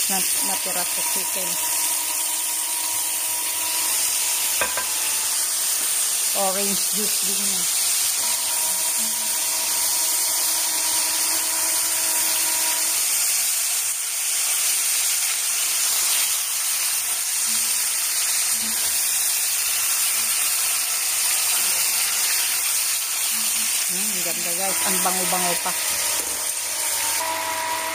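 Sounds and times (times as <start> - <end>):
chicken sizzling in a pot: 0.0 - 27.9.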